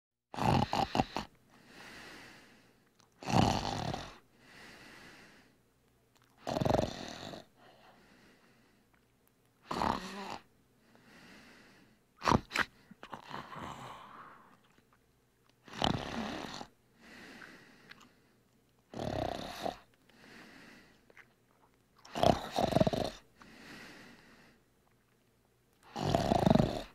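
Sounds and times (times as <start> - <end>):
loud snoring: 0.3 - 1.3, 3.2 - 4.2, 6.4 - 7.6, 9.7 - 10.5, 12.2 - 14.5, 15.6 - 16.7, 18.9 - 19.9, 22.1 - 24.1, 25.9 - 26.9
faint breathing: 0.8 - 2.9, 4.2 - 5.6, 7.4 - 9.0, 10.0 - 12.1, 12.7 - 14.7, 17.0 - 18.5, 19.5 - 21.1, 22.4 - 24.7.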